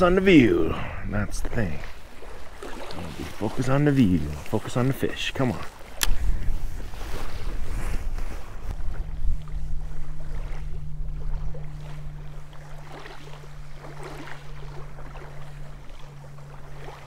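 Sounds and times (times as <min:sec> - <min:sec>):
low motor drone: 0:00.0 - 0:17.0
wind buffeting microphone: 0:05.6 - 0:14.1
fishing reel clicks: 0:05.9 - 0:06.2.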